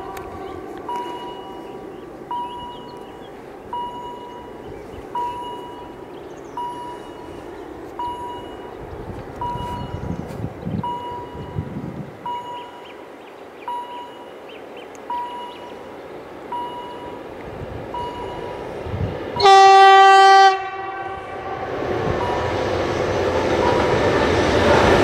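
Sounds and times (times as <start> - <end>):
warning bell dinging: 0.0 - 8.8, 9.4 - 10.0, 10.8 - 13.0, 13.7 - 15.9, 16.5 - 17.3, 18.0 - 18.7, 22.2 - 22.6
diesel locomotives rumbling: 0.0 - 25.0.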